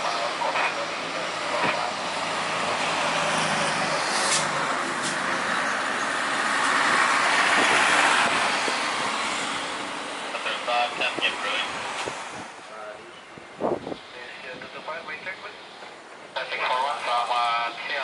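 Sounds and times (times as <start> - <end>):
jet engines taxiing: 0.0 - 12.7.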